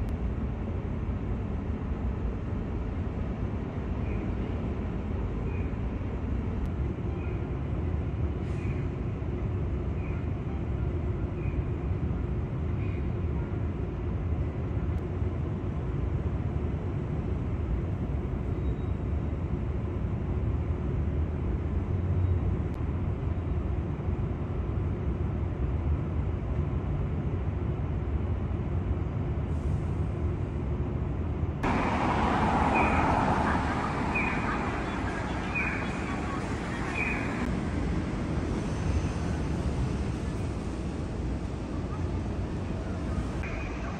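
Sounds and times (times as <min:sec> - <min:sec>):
low rumble of city traffic: 0:00.0 - 0:43.9
street traffic noise: 0:00.0 - 0:43.9.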